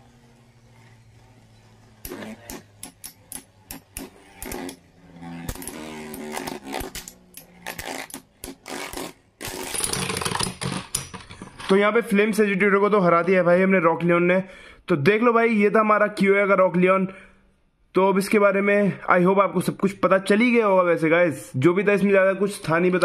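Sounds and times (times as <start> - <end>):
spinning tops whirring: 0.0 - 11.7
metal tops clacking together: 5.4 - 11.8.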